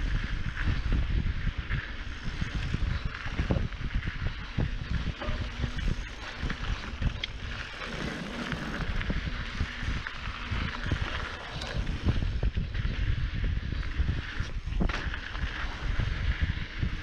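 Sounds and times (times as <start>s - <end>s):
wind buffeting microphone: 0.0s - 17.0s
bike rattling and knocking: 0.1s - 17.0s.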